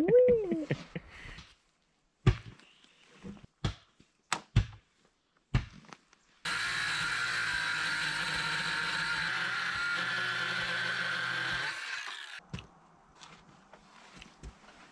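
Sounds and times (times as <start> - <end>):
circular saw cutting wood: 6.5 - 12.4.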